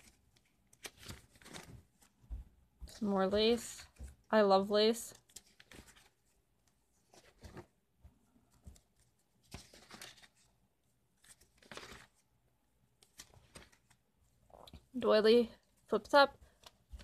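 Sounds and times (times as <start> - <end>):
paper pages turning: 0.0 - 2.3, 5.1 - 12.3, 12.9 - 14.8, 16.4 - 17.0.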